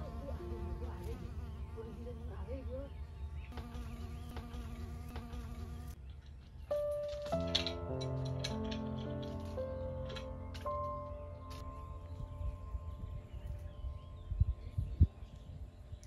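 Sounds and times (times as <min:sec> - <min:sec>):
bees buzzing: 0:00.0 - 0:06.0
music: 0:06.6 - 0:16.0.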